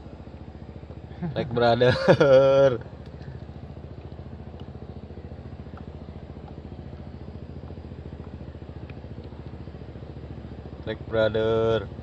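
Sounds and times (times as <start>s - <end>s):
small boat engine running: 0.0s - 12.0s.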